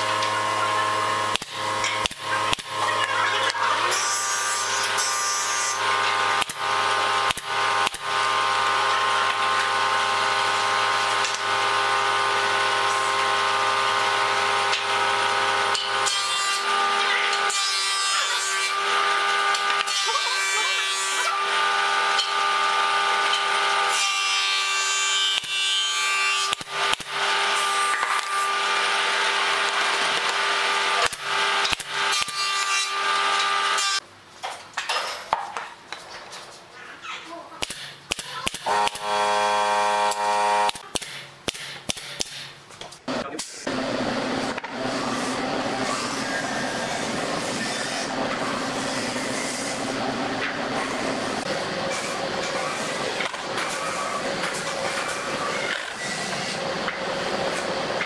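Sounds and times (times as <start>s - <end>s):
power tool whining: 38.4s - 41.0s.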